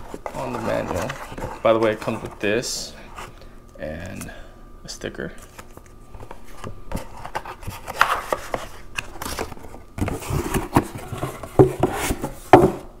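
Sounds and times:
cardboard and paper handled: 0:00.0 - 0:02.6, 0:05.4 - 0:12.8.

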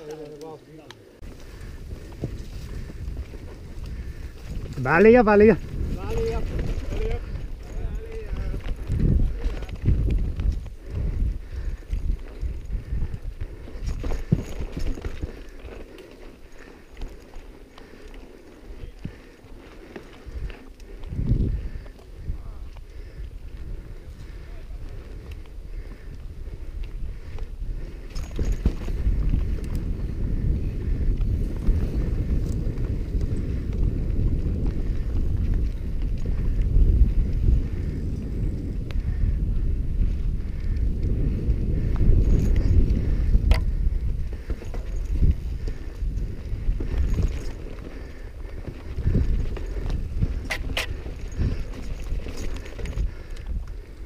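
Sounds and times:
bike tyre rumble: 0:00.9 - 0:54.0
bike tyres rumbling over rock: 0:01.2 - 0:22.3
wind buffeting microphone: 0:01.2 - 0:54.0
bike rattling clicks and knocks: 0:01.3 - 0:39.3, 0:40.5 - 0:54.0.

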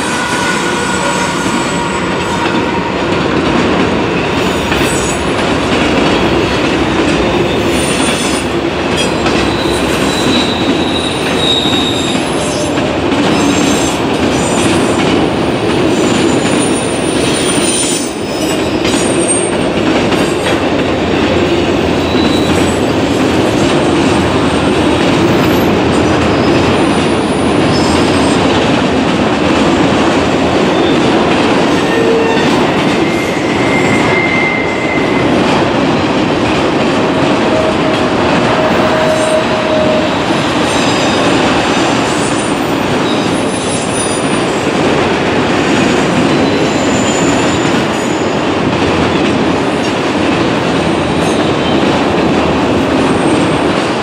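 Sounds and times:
steel wheels on rail: 0:00.0 - 0:54.0
high-pitched wheel squeals: 0:09.5 - 0:12.7, 0:31.9 - 0:35.5.

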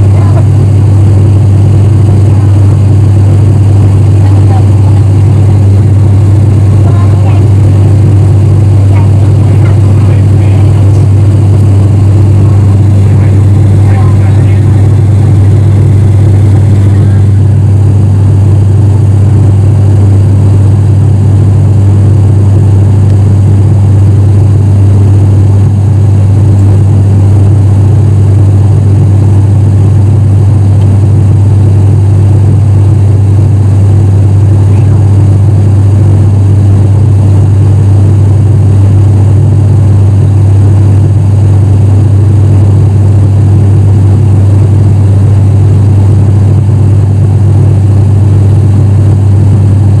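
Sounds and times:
turboprop engine drone in cabin: 0:00.0 - 0:50.0.

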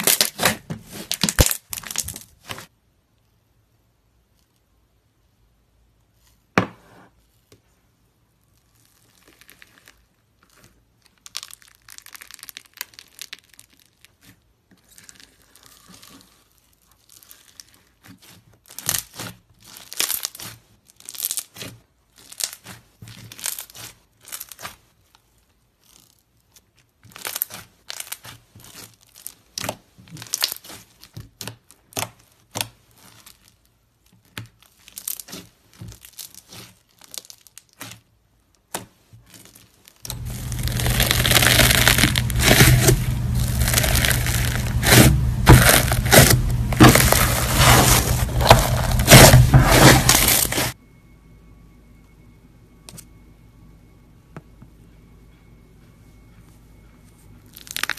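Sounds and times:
slime crackling and popping: 0:00.0 - 0:02.7, 0:08.4 - 0:50.8, 0:57.5 - 0:57.9.

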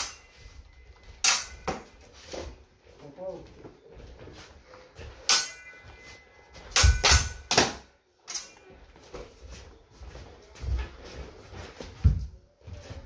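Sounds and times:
steel swords clashing: 0:00.0 - 0:00.3, 0:01.2 - 0:01.8, 0:05.2 - 0:06.0, 0:06.7 - 0:08.6.

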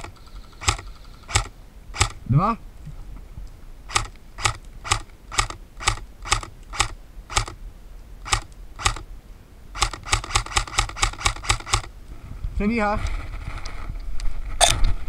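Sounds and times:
airsoft gun shots: 0:00.0 - 0:02.2, 0:03.9 - 0:07.6, 0:08.2 - 0:09.1, 0:09.8 - 0:11.9.

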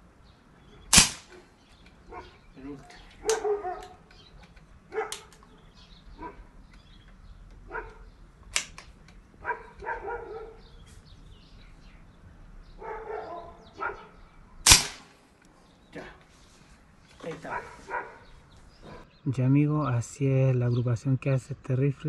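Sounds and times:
air rifle shot: 0:00.9 - 0:01.4, 0:14.6 - 0:15.2
dog barking: 0:02.1 - 0:04.1, 0:04.9 - 0:06.5, 0:07.7 - 0:08.1, 0:09.4 - 0:10.8, 0:12.8 - 0:14.3, 0:17.4 - 0:19.1
sharp click: 0:08.5 - 0:09.2, 0:14.7 - 0:15.1.

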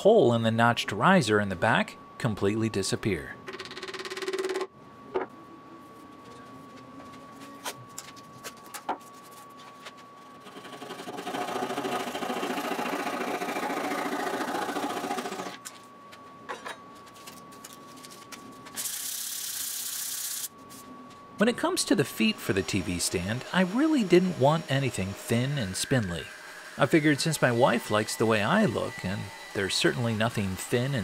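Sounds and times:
hand saw cutting wood: 0:10.5 - 0:15.6.

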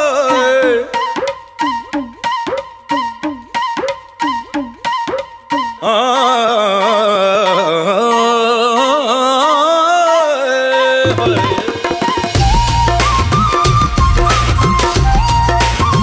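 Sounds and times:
drum strokes: 0:11.1 - 0:16.0.

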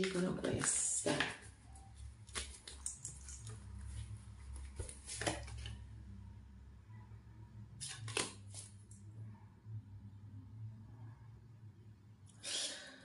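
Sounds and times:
cards rustling in hand: 0:00.0 - 0:05.8, 0:07.8 - 0:08.8.

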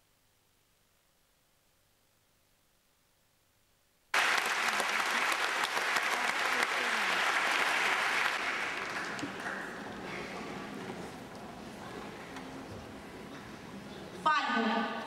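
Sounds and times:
group applause: 0:04.1 - 0:10.5.

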